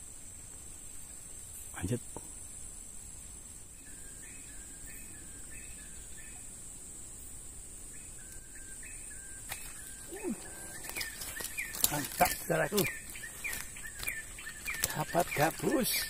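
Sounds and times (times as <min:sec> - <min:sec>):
high-pitched insect drone: 0:03.7 - 0:16.0.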